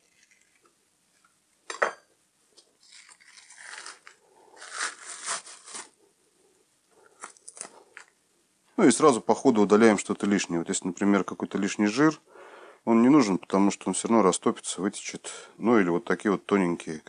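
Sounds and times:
membrane tearing from ribs: 2.8 - 5.9.

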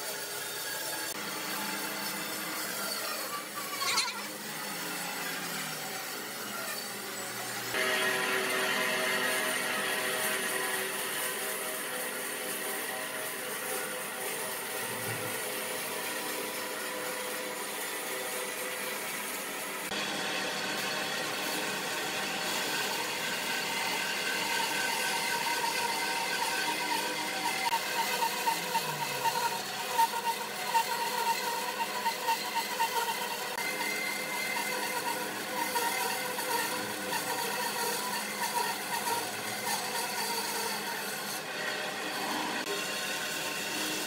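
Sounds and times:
electric power tool running: 0.0 - 44.0.

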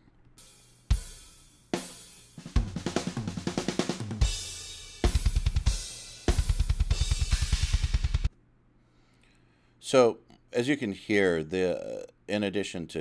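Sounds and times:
metal drum kit playing: 0.4 - 8.3
fast double-kick drum runs: 2.4 - 8.3
cymbal crashes: 4.2 - 8.3.

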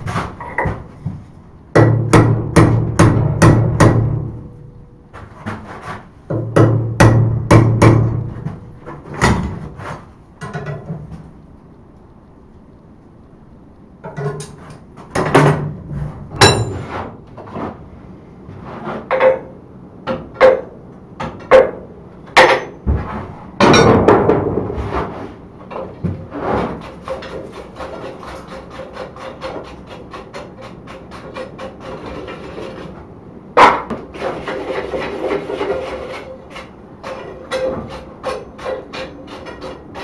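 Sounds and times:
hammer striking steel on anvil: 16.4 - 17.0.

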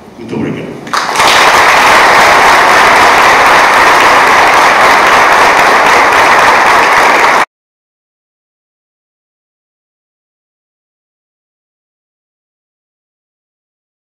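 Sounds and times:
audience applauding: 0.9 - 7.5.

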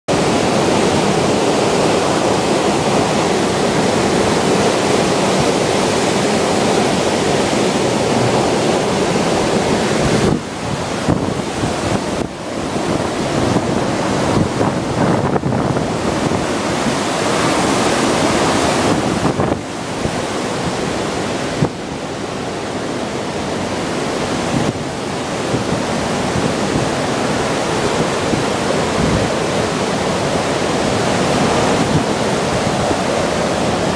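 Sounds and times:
strong wind buffeting microphone: 0.1 - 33.9.

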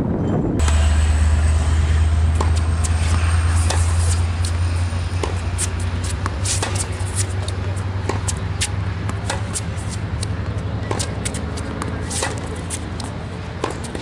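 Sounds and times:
low rumble: 0.0 - 8.2
tennis balls struck with rackets: 0.6 - 14.0.

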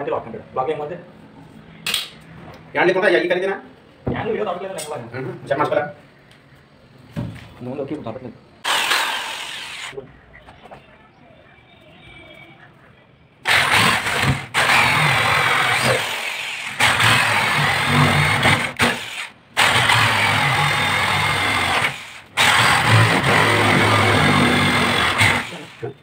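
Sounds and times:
electric drill boring into wood: 8.6 - 10.0, 13.5 - 25.9.

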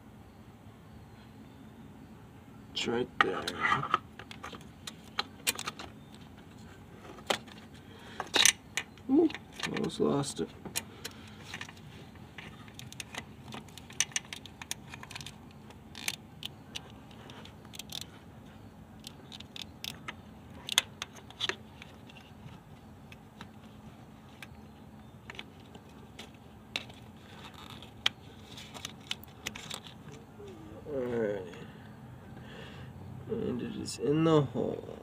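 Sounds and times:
small clicks and scrapes of sensor: 10.7 - 24.6, 25.2 - 30.2.

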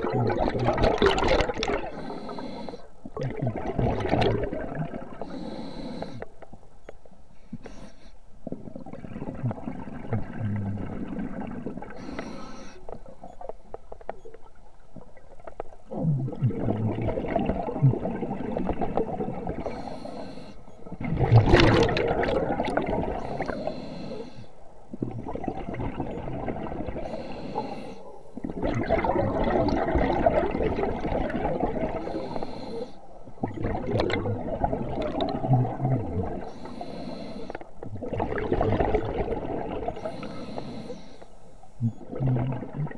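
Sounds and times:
bubbling underwater: 0.0 - 1.9, 3.2 - 5.2, 15.8 - 19.6, 20.9 - 23.2, 24.9 - 27.0, 28.4 - 32.1, 33.4 - 36.4, 37.8 - 40.0, 41.8 - 42.9
regulator hiss on inhale: 1.9 - 3.0, 5.2 - 6.4, 7.3 - 8.2, 11.9 - 13.1, 19.6 - 20.9, 23.2 - 24.6, 27.0 - 28.4, 32.0 - 33.2, 36.4 - 37.7, 40.0 - 41.8.

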